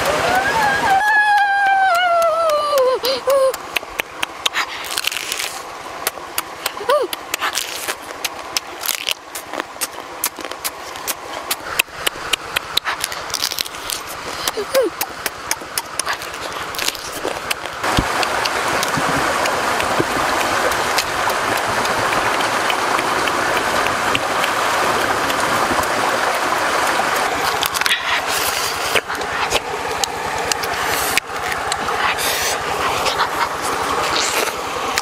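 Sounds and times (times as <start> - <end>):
stream water flowing: 0.0 - 35.0
crab shell cracking and crunching: 3.5 - 18.6.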